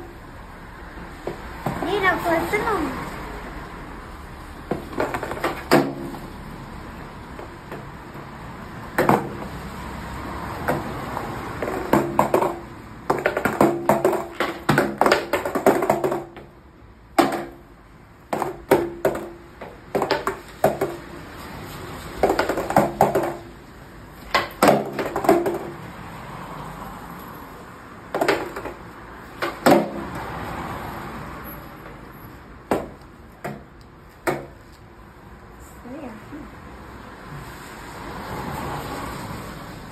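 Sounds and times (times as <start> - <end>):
skateboard clacks on concrete: 4.7 - 6.3, 8.9 - 9.6, 10.5 - 16.6, 17.2 - 17.6, 18.2 - 25.9, 28.1 - 30.4.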